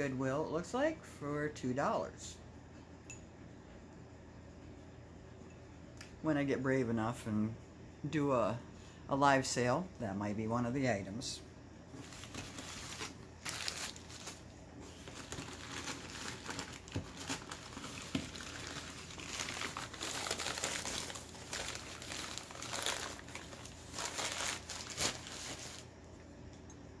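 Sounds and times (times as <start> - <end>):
packing wrap crinkling: 12.0 - 25.9.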